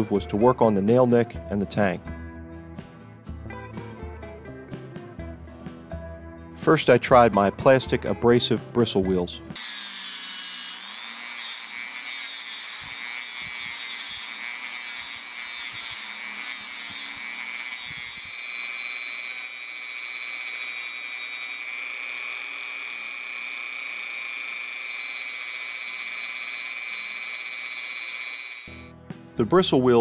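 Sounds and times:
rotary tool whining on steel: 9.6s - 28.9s.

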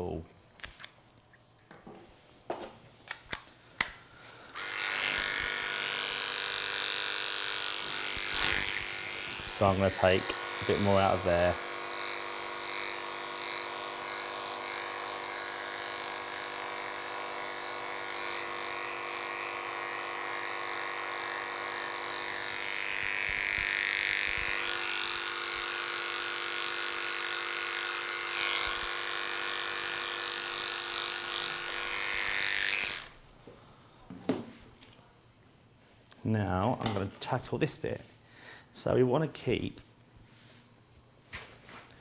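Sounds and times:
electric clippers buzzing: 4.3s - 33.2s.

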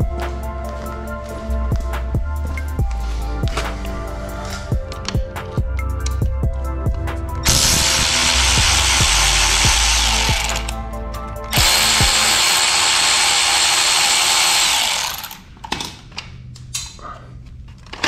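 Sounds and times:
cordless power tool spinning: 7.4s - 10.8s, 11.5s - 15.4s.

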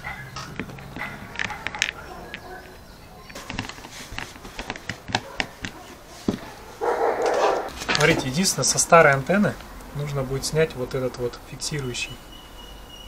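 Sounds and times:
hand tools clicking and knocking: 0.0s - 6.5s.

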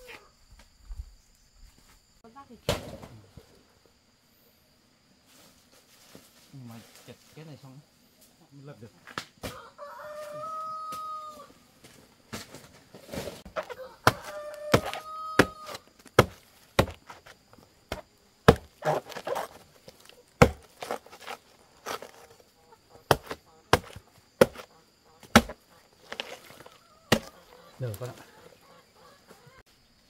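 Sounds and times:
chicken calling: 13.5s - 15.9s, 24.6s - 29.6s
blade chopping: 13.5s - 17.3s, 17.9s - 19.6s, 20.4s - 22.3s, 23.1s - 27.4s.

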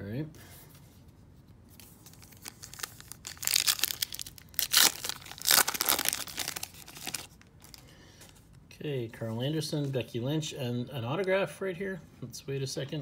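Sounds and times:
wrapper tearing and crinkling: 2.0s - 7.8s.

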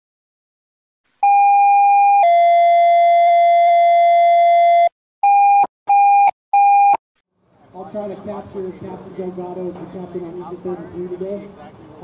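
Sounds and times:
short beeps: 1.2s - 7.0s.

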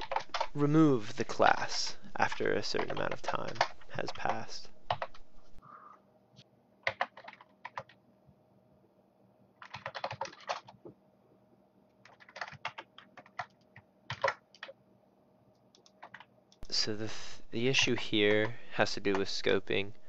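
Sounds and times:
computer keyboard typing: 0.0s - 0.6s, 1.2s - 5.3s, 6.8s - 8.0s, 9.6s - 10.8s, 12.0s - 14.8s, 15.6s - 16.6s, 17.8s - 19.4s.

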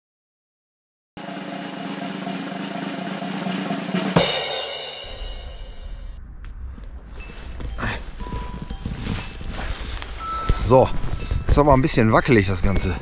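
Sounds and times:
drum roll: 1.2s - 6.2s
loud drum hit ringing: 1.2s - 6.2s.

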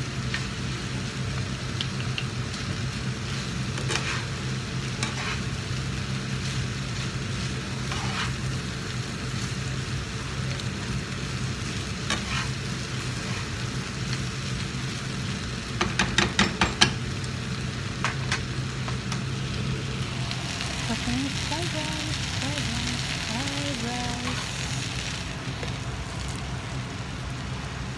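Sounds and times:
fried rice sizzling in a pan: 0.0s - 27.9s
utensils clacking against pan: 15.8s - 17.0s
low hum: 19.2s - 27.9s.

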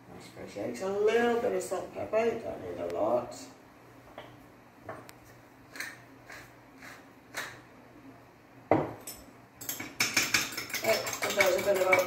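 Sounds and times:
pepper mill grinding: 9.6s - 12.0s.

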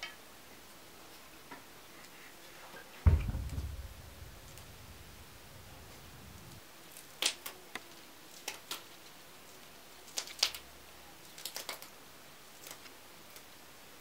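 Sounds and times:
green beans snapping: 10.1s - 10.6s, 11.3s - 11.9s.

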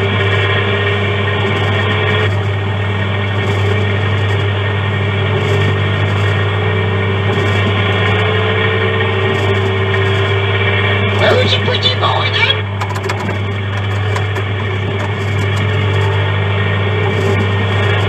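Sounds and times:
kiddie ride motor humming: 11.2s - 18.0s.

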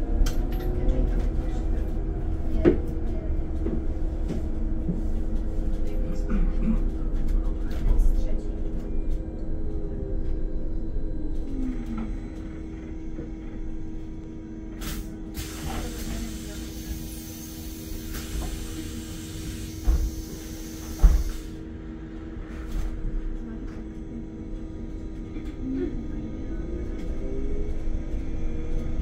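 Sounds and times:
bus electrical hum: 0.0s - 29.0s
compressed air hissing: 14.8s - 21.6s
pneumatic doors thumping: 19.4s - 21.6s.

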